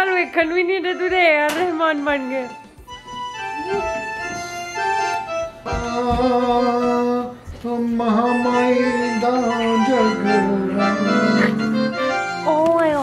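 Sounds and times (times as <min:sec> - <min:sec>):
man singing: 0:05.6 - 0:12.2.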